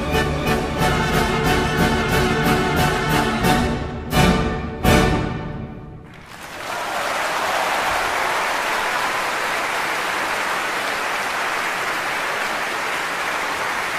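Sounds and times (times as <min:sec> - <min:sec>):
audience applauding: 0:06.0 - 0:13.9.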